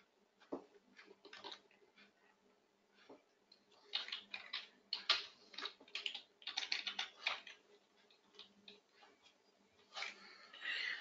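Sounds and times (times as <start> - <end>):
keyboard typing: 1.0 - 1.9, 3.7 - 8.8.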